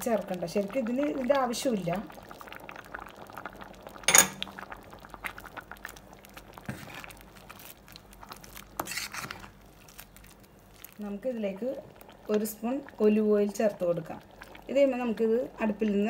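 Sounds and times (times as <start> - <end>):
stew bubbling and popping: 0.0 - 16.0
spoon clinking on steel pot: 4.1 - 4.5.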